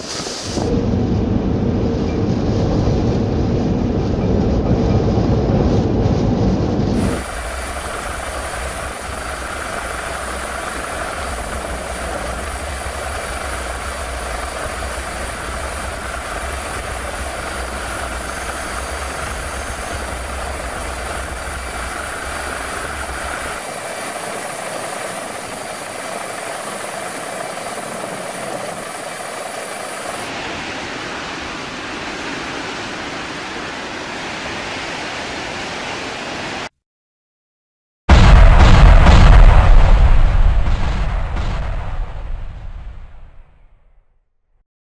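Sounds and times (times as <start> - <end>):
bright steady rushing noise: 0.0 - 36.7
helicopter engine and rotor: 7.0 - 30.6.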